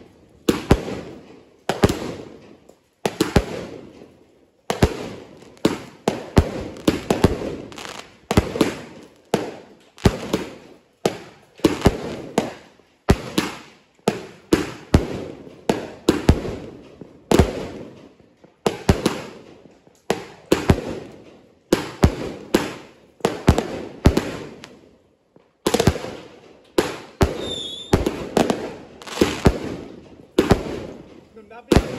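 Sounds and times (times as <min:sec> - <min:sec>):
firework shells bursting: 0:25.6 - 0:31.9.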